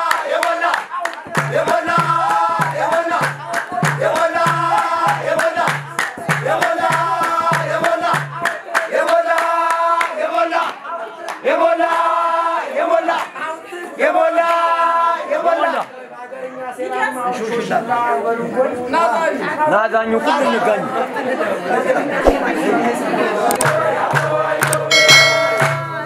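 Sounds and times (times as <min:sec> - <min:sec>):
hand claps: 0:00.0 - 0:12.0, 0:23.5 - 0:26.0
men chanting song: 0:00.0 - 0:13.4, 0:21.7 - 0:25.6.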